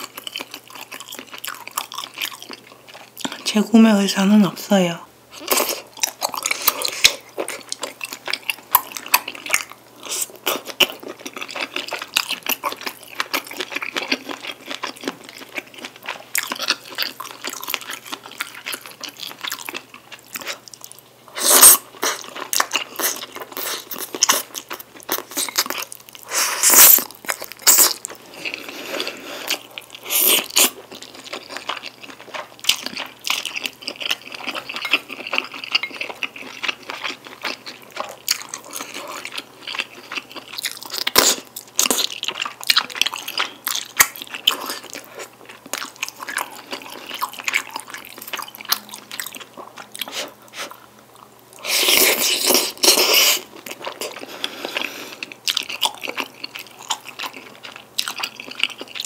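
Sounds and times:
chewing and wet mouth sounds: 0.0s - 3.6s, 5.3s - 59.0s.

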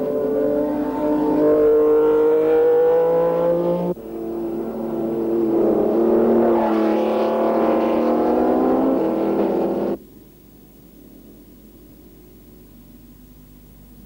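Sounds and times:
racing car engines revving high: 0.0s - 10.0s.

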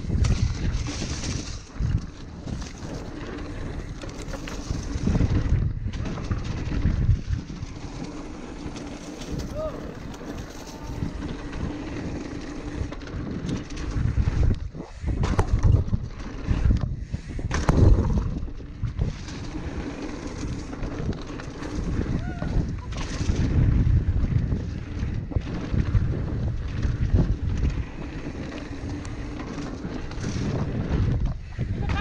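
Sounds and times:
bike rattling over bumps: 0.0s - 32.0s
tyres rolling over dirt: 0.0s - 32.0s
wind buffeting microphone: 0.0s - 32.0s.

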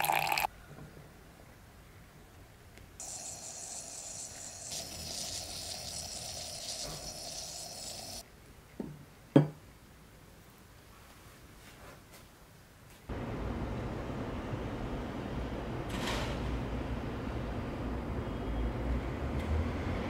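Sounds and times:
coffee and air hissing through filter: 0.0s - 0.5s, 3.0s - 8.2s.

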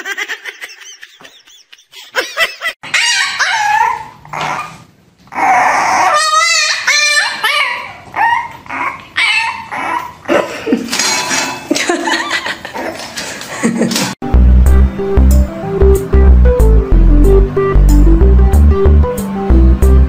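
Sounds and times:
puppy whining and yipping: 2.8s - 10.2s.

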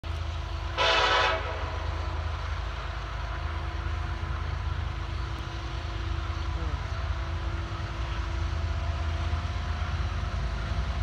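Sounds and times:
train horn blast: 0.8s - 2.0s.

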